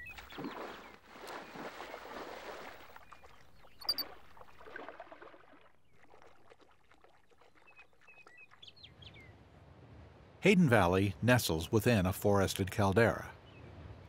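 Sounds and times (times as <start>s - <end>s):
water splashing: 0.0s - 9.0s.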